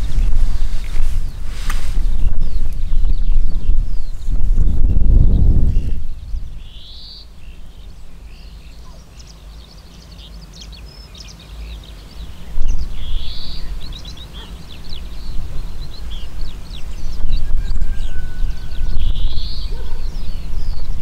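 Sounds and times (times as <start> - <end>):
wind rumble on microphone: 0.0 - 9.0, 11.8 - 21.0
songbirds singing and chirping: 0.0 - 21.0
buzzy bird call: 8.4 - 21.0.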